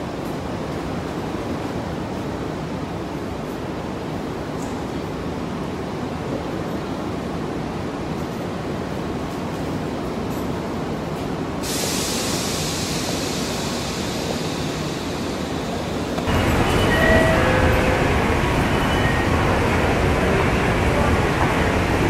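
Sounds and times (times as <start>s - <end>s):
train and concourse noise: 0.0s - 22.0s
faint high tones: 16.3s - 20.7s.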